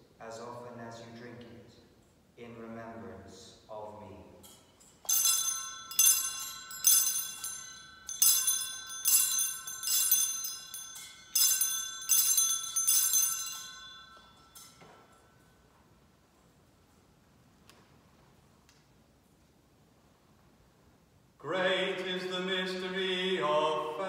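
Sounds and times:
bell ringing: 0:04.4 - 0:15.8.

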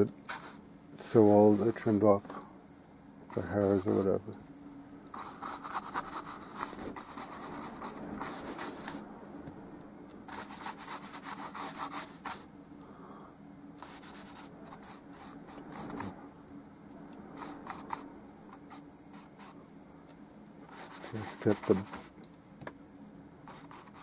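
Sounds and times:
faint low hum: 0:00.0 - 0:24.0
paintbrush scrubbing canvas: 0:00.3 - 0:02.0, 0:05.1 - 0:09.0, 0:10.3 - 0:12.5, 0:13.8 - 0:16.1, 0:17.4 - 0:18.0, 0:18.6 - 0:19.6, 0:20.7 - 0:22.2, 0:23.5 - 0:24.0.

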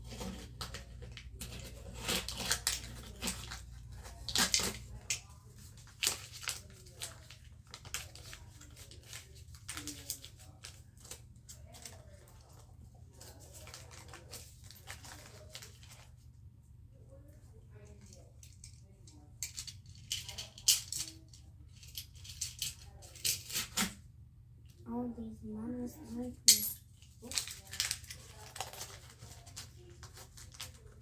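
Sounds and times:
small objects clicking and tapping: 0:18.0 - 0:23.6, 0:26.5 - 0:29.0.

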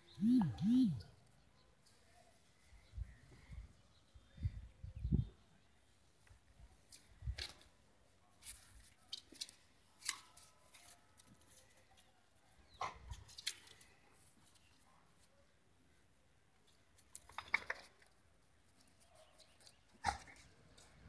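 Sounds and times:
dogs play-wrestling on concrete: 0:18.7 - 0:21.0.

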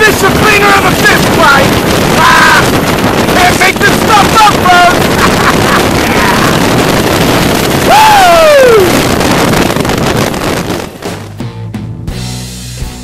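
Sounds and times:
wind rushing over microphone: 0:00.0 - 0:11.4
falling whoop: 0:07.8 - 0:09.0.

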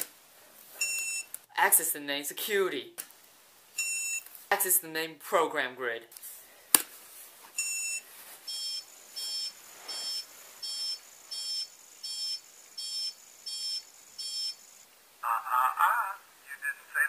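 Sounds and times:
computer beeping: 0:00.8 - 0:01.3, 0:03.8 - 0:04.2, 0:07.6 - 0:14.8
warbling alarm sound: 0:08.5 - 0:14.8.

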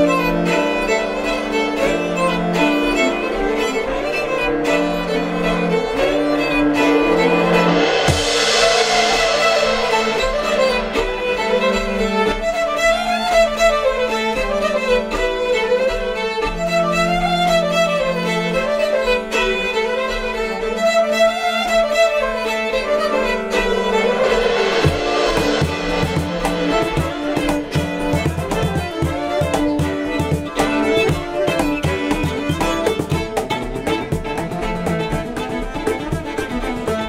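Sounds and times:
folk band playing: 0:00.0 - 0:37.0
cymbal crash: 0:02.9 - 0:12.6, 0:22.7 - 0:33.9.

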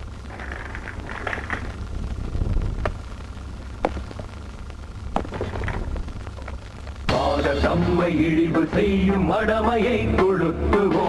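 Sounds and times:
faint rustle: 0:00.0 - 0:07.1
steady low rumble: 0:00.0 - 0:10.9.

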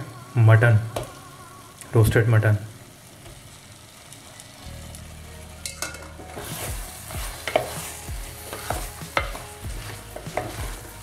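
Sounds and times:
sauce sizzling: 0:00.0 - 0:11.0
spatula scraping and knocking pot: 0:05.8 - 0:10.9.

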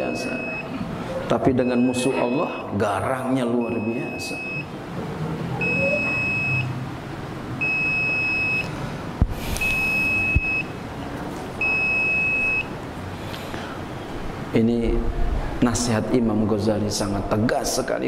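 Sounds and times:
high-pitched electronic beeps: 0:05.6 - 0:06.7, 0:09.6 - 0:10.7.

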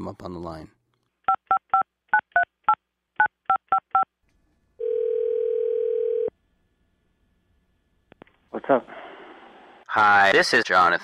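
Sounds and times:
telephone ringing tone: 0:04.8 - 0:06.3.

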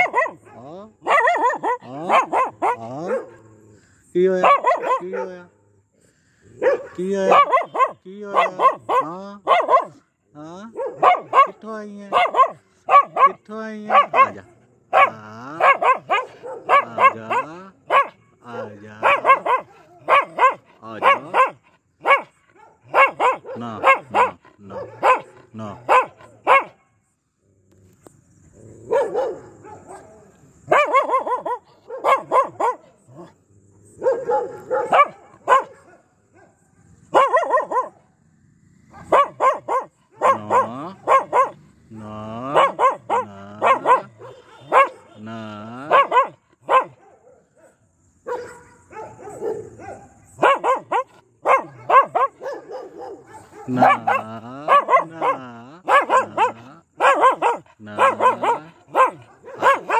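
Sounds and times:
dog barking aggressively: 0:00.0 - 0:03.6, 0:04.4 - 0:05.6, 0:06.5 - 0:10.1, 0:10.7 - 0:26.8, 0:28.7 - 0:38.2, 0:38.8 - 0:45.2, 0:45.8 - 0:59.9.

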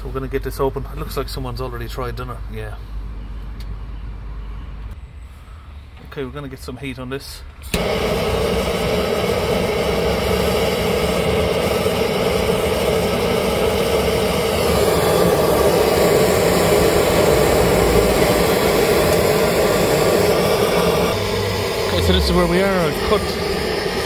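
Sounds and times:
blowtorch hissing: 0:07.7 - 0:24.0.

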